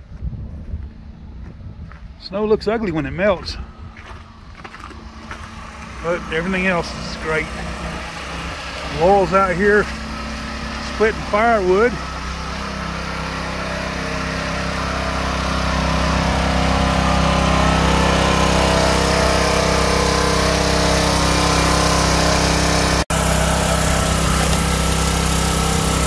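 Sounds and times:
log splitter engine running: 2.2s - 26.0s.

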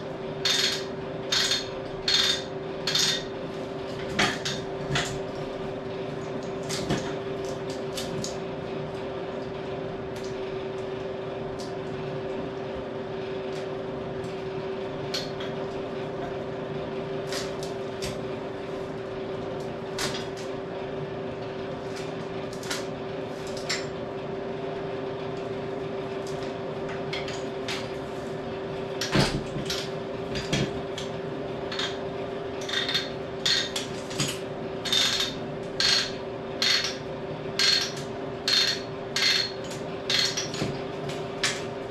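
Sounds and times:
mechanical hum: 0.0s - 41.9s.

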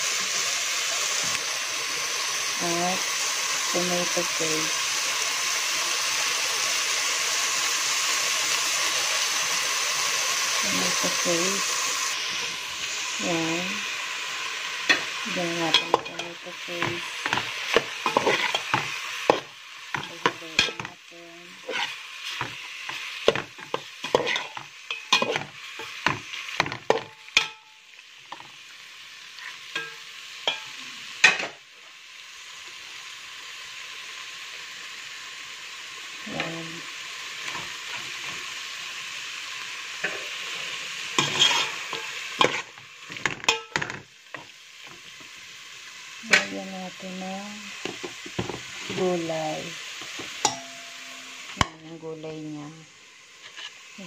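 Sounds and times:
food sizzling: 0.0s - 54.0s
metal spoon scraping a pot: 14.8s - 21.0s, 21.6s - 26.0s, 41.2s - 42.7s, 53.4s - 53.8s.

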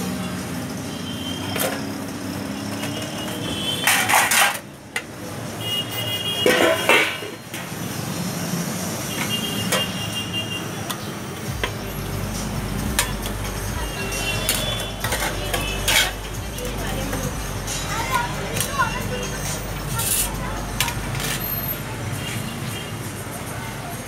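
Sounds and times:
plates scraping: 2.8s - 4.7s, 6.4s - 7.4s, 12.9s - 21.8s.

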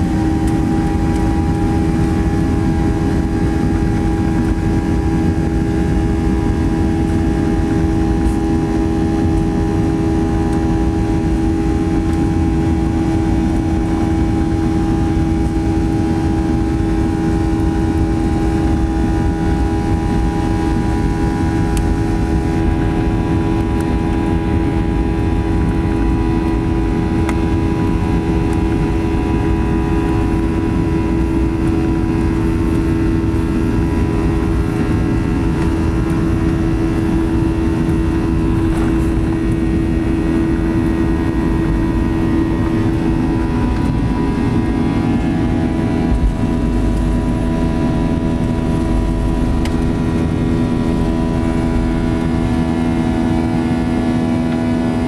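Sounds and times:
airplane cabin engine drone: 0.0s - 55.0s.

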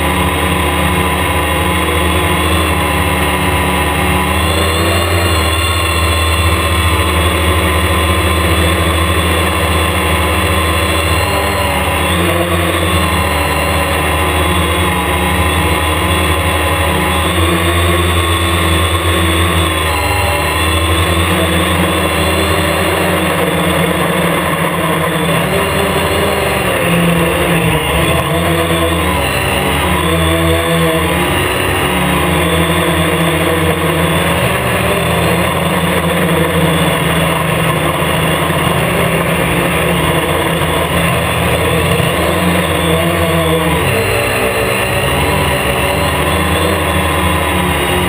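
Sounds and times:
drone motors and propellers whining: 0.0s - 48.0s.

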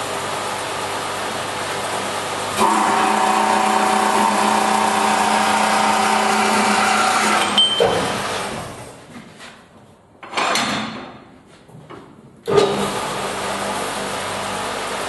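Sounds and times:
bandsaw cutting metal: 2.6s - 8.5s.

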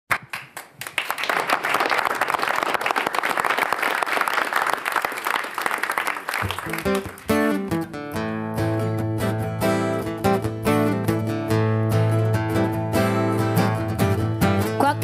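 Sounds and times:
audience applause: 0.1s - 7.6s
acoustic guitars picking: 6.6s - 15.0s.

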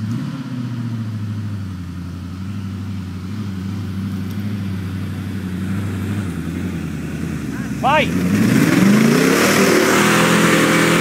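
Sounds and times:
jeep engine running at low revs: 0.0s - 11.0s.

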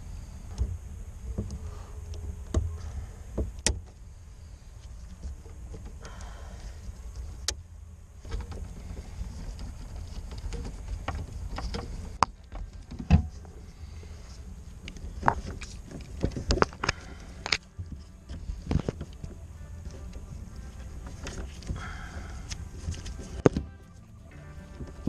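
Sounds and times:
clicks and knocks of handling wiring: 8.2s - 13.6s, 14.2s - 25.0s.

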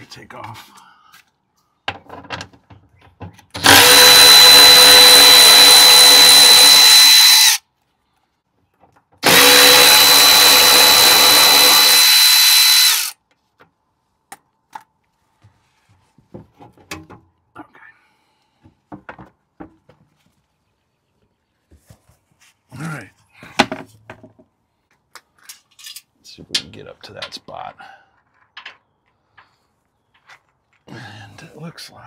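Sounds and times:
cordless power tool whining: 3.6s - 7.6s, 9.2s - 13.2s.

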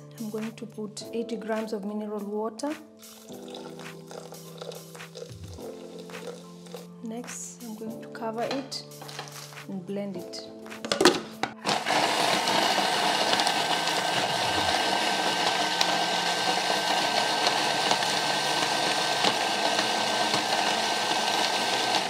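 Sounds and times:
food processor blade whirring: 11.6s - 22.0s.

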